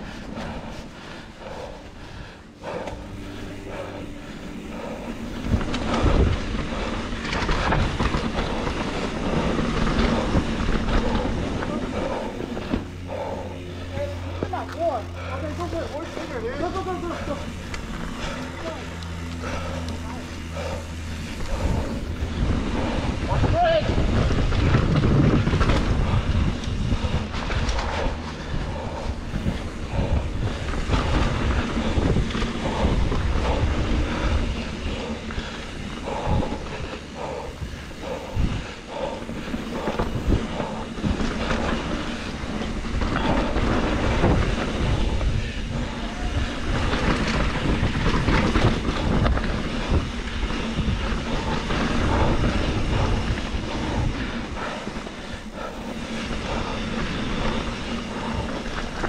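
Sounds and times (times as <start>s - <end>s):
bike rattling over bumps: 0.0s - 59.0s
bike tyres rushing on dirt: 0.0s - 59.0s
wind on microphone: 17.1s - 59.0s.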